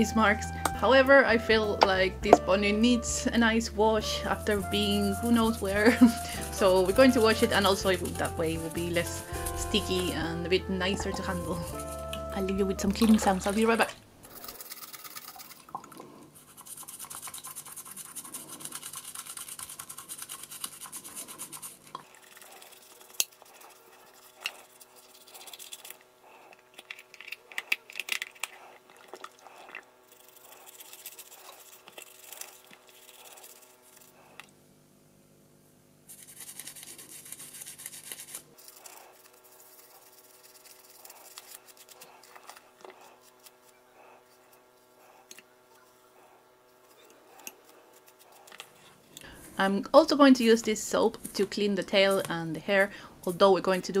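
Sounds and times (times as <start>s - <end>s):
toothbrush scrubbing plastic: 3.9s - 34.5s, 36.1s - 45.6s, 46.7s - 49.0s.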